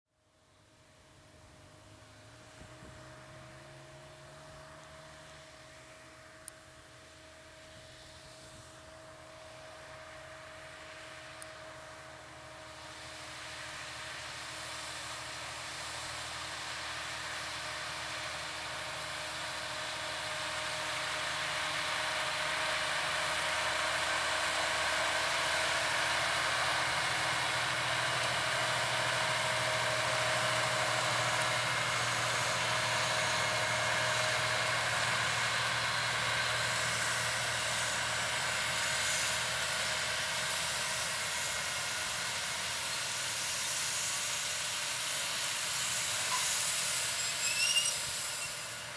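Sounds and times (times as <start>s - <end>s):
tractor diesel engine running: 0.5s - 48.9s
seed drill rushing noise: 25.6s - 48.9s.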